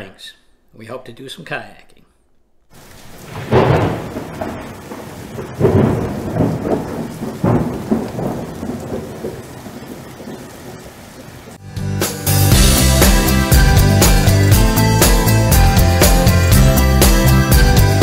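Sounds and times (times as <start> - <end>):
steady rain: 2.6 - 18.0
thunder rolling: 2.7 - 11.6.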